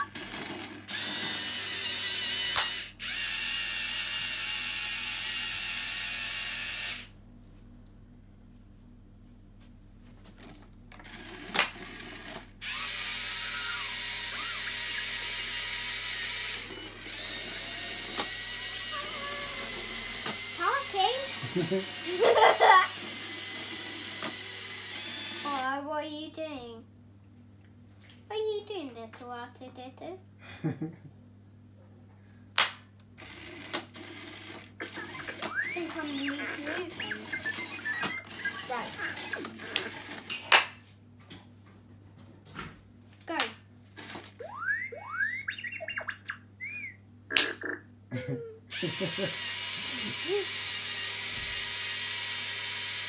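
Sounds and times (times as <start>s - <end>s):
toy robot motors whirring: 0.0s - 7.1s, 11.0s - 25.8s, 33.2s - 40.4s, 43.3s - 44.7s, 48.7s - 53.0s
electronic whistles and beeps: 12.7s - 15.5s, 35.0s - 39.6s, 44.4s - 47.0s
toy robot clicks: 34.4s - 40.0s.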